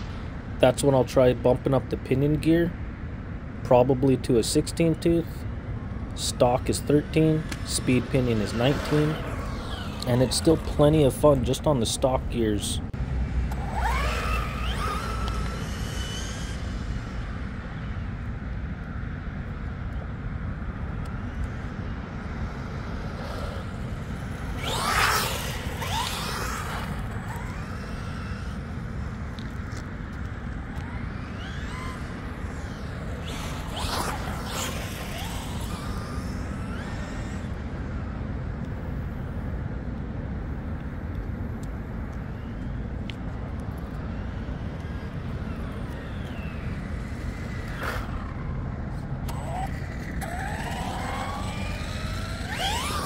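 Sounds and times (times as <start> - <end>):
electric motor whine: 6.4 - 12.0, 12.6 - 18.2, 21.0 - 39.2, 42.1 - 53.0.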